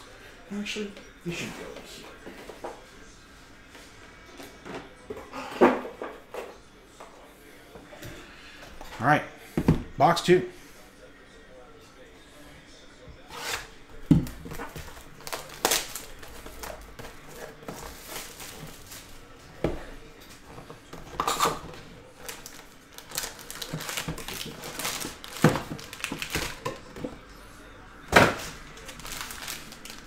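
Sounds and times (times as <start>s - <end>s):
crinkling plastic wrap and foil: 14.6s - 19.2s, 22.2s - 26.8s, 28.7s - 30.0s.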